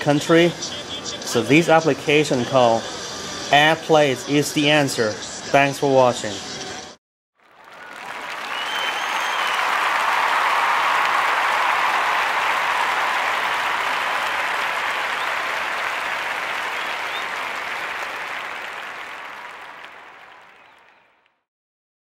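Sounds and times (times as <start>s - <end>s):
crowd applause: 7.4s - 21.2s
short whistles: 7.8s - 9.8s.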